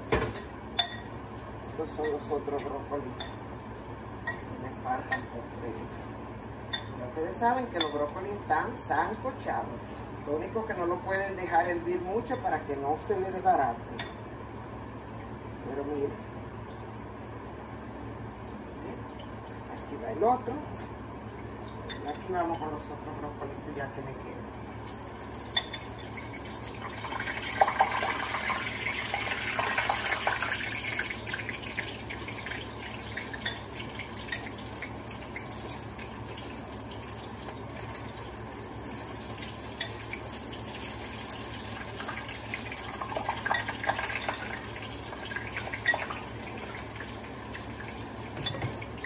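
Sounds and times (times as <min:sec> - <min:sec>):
food sizzling in hot oil: 0:24.9 - 0:49.0.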